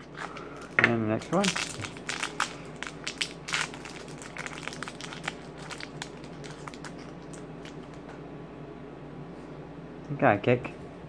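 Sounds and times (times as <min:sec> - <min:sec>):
plastic wrapper crinkling: 0:00.0 - 0:08.0.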